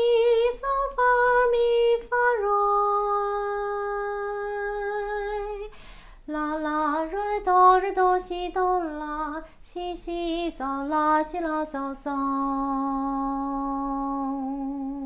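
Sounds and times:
woman singing unaccompanied: 0.0s - 15.0s
audible breath: 5.7s - 6.2s.

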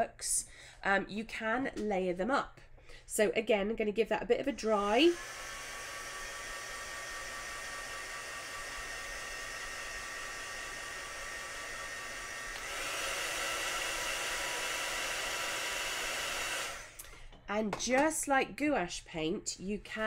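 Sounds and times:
heat gun blowing air: 4.9s - 17.2s.

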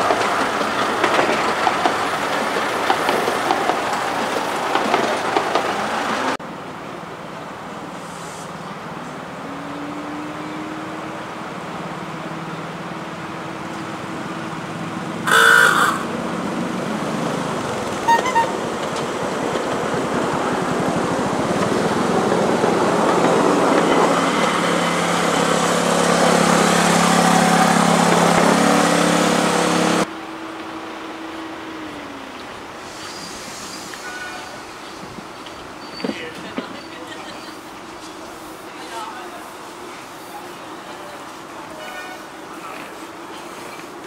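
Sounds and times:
wheels rumbling on rails: 0.0s - 6.4s, 7.4s - 44.0s
horn toot: 15.3s - 16.1s, 18.1s - 18.6s.

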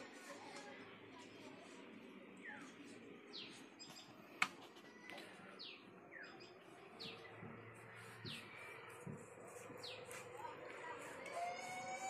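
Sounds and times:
bird chirping: 2.4s - 10.3s.

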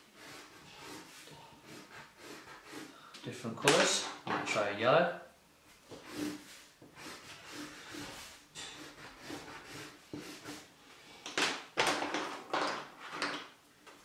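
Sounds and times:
crayon rubbing on paper: 0.0s - 3.0s, 5.9s - 10.7s
crayons clattering: 11.2s - 13.6s.

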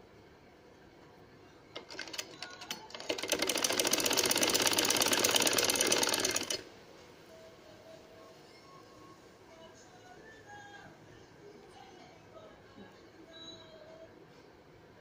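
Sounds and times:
sewing machine stitching: 1.8s - 6.6s.

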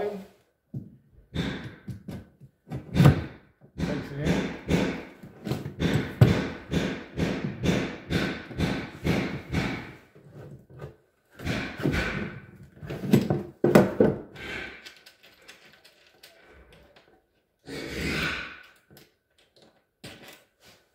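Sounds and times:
rhythmic knocks on drywall: 0.8s - 10.2s, 10.8s - 14.8s.

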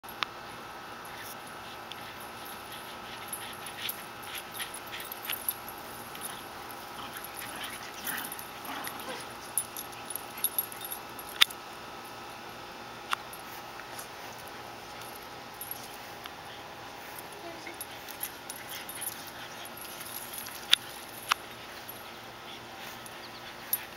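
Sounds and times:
excited dog sounds: 2.6s - 10.8s.

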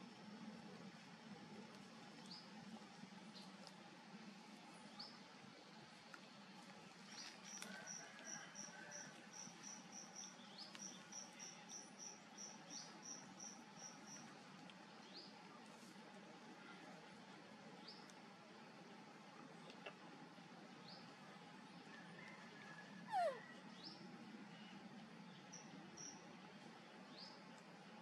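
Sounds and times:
insect chirping: 7.9s - 14.3s.

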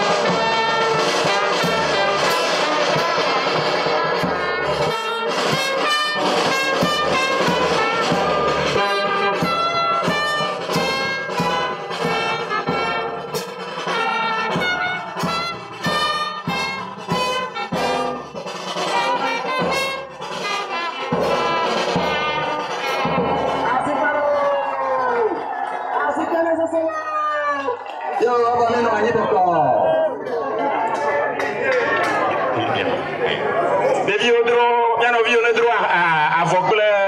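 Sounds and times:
brass music over steady beat: 0.0s - 24.4s.

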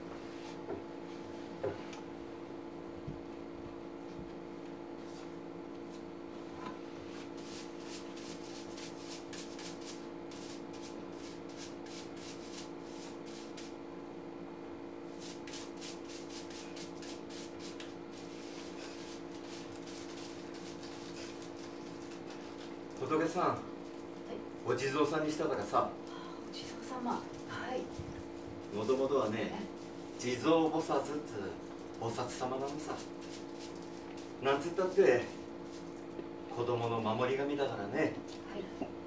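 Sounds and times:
steady hum: 0.0s - 39.0s
sanding wood: 7.1s - 13.8s, 15.1s - 21.7s.

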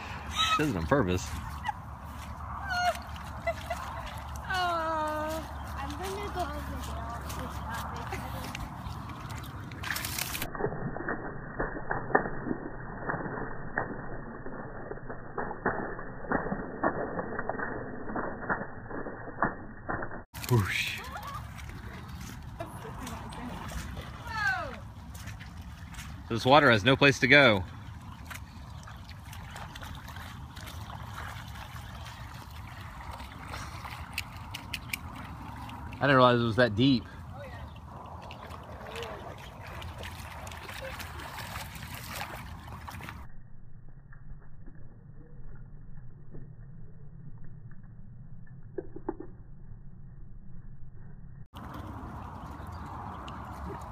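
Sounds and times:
dog paws splashing in water: 0.3s - 10.5s, 20.4s - 43.3s, 51.6s - 53.9s.

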